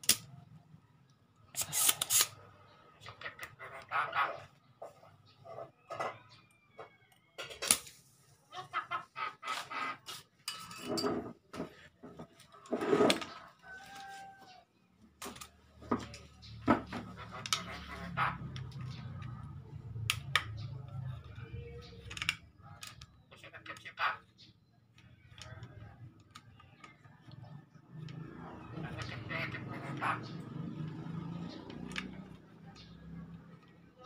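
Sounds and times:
chickens clucking: 0:02.5 - 0:07.0, 0:08.3 - 0:10.4, 0:15.8 - 0:22.0, 0:26.6 - 0:34.0.

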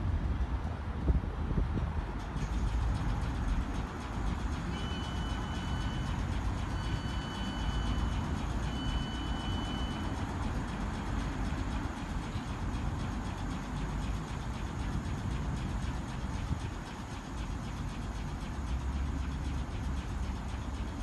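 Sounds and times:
electric train rumble: 0:00.0 - 0:21.0
high electronic beeps: 0:04.7 - 0:10.2.

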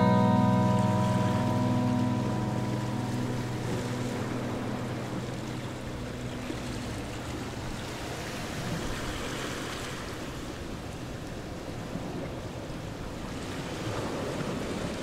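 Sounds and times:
background music chords: 0:00.0 - 0:08.6.

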